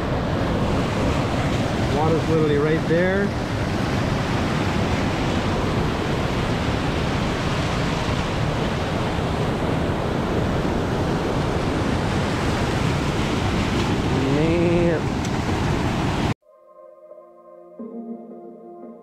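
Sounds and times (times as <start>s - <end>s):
creek rushing over boulders: 0.0s - 3.4s, 6.8s - 16.4s.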